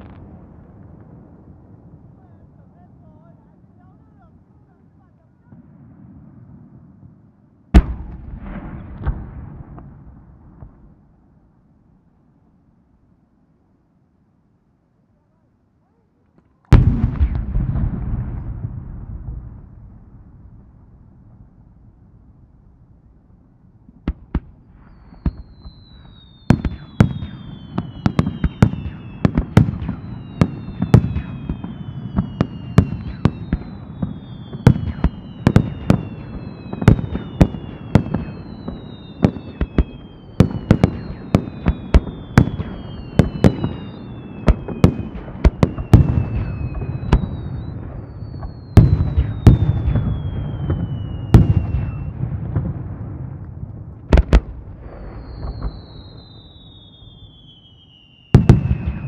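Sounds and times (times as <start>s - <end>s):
fireworks whistles falling in pitch: 24.3s - 52.3s, 54.1s - 59.0s.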